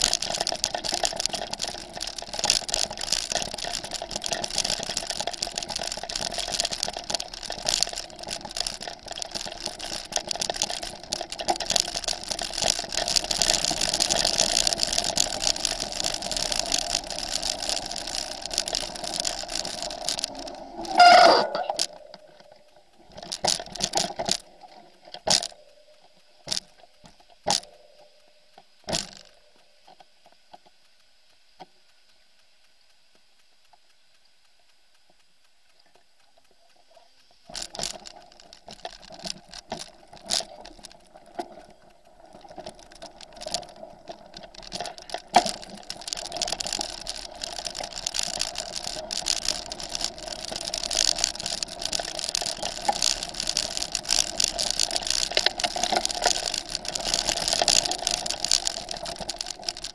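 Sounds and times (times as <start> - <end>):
mountain bike knocking and rattling: 0.0 - 22.1, 23.0 - 28.0, 37.4 - 59.9
tyre noise on gravel: 0.0 - 22.3, 37.4 - 59.9.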